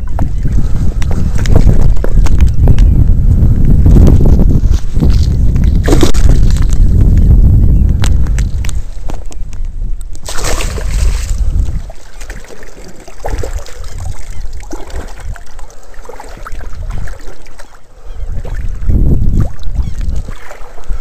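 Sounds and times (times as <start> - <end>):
water splashing and sloshing: 5.0 - 6.8, 10.1 - 21.0.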